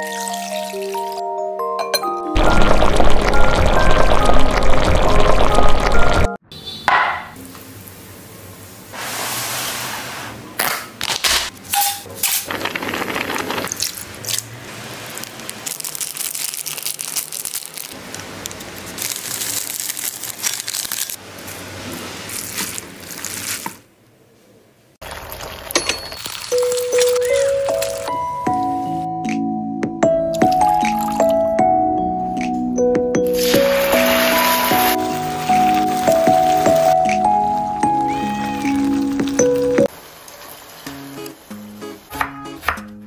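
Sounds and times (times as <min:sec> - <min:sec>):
plastic packets crinkling and tearing: 0:12.5 - 0:21.2, 0:22.3 - 0:23.8
sauces squeezed and poured wetly: 0:25.0 - 0:28.1, 0:30.4 - 0:31.4.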